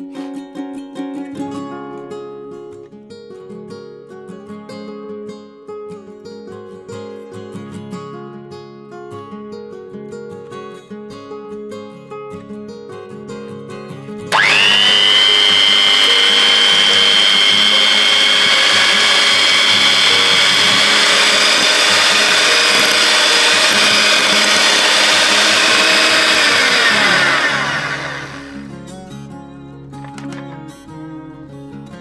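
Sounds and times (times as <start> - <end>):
hand mixer motor whining: 14.3 - 28.7.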